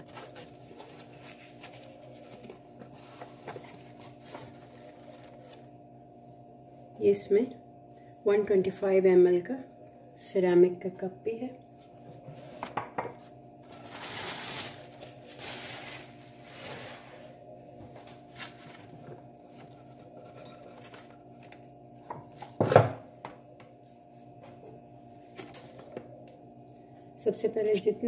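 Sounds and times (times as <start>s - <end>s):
plastic packing rustling: 0.0s - 5.7s, 13.6s - 17.0s.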